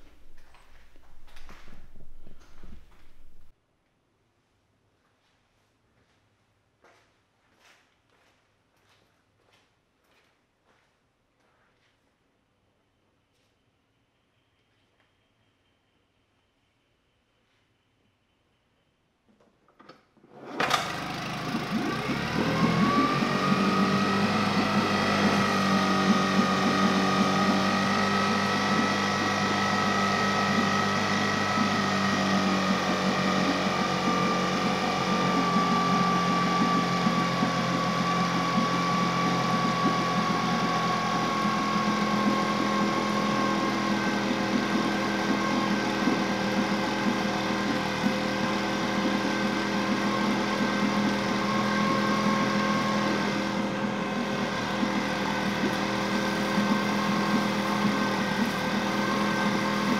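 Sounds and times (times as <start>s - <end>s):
outboard motor pull-started: 20.2s - 59.9s
outboard motor idling: 20.7s - 59.9s
thin whine: 21.1s - 59.9s.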